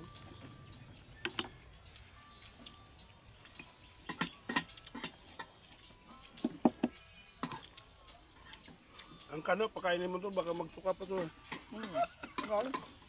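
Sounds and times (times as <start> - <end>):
spoons tapping a metal pot: 11.1 - 13.0.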